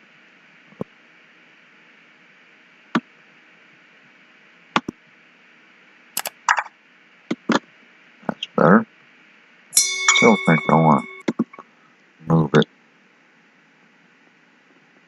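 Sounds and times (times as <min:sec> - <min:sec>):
computer mouse clicks: 0:06.2 - 0:06.7.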